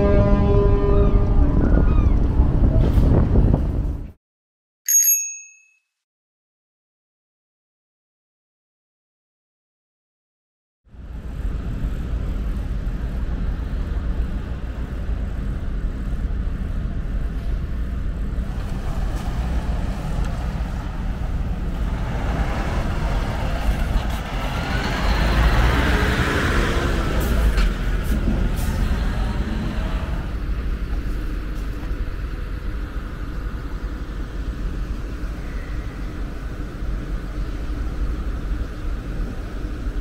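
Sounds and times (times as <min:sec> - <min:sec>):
road traffic rumble: 0:10.9 - 0:40.0
vehicle passing: 0:18.5 - 0:30.6.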